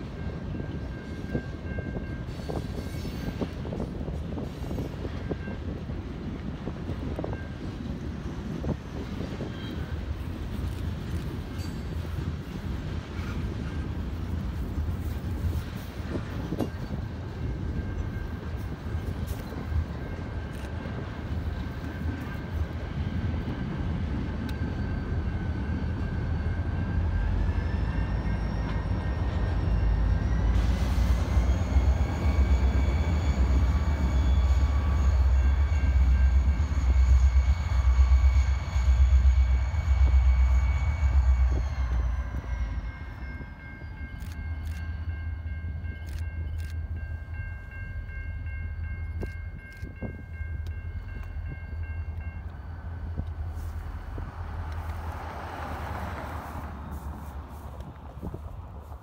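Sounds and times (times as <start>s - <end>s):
diesel locomotive engine rumble: 0.0s - 59.0s.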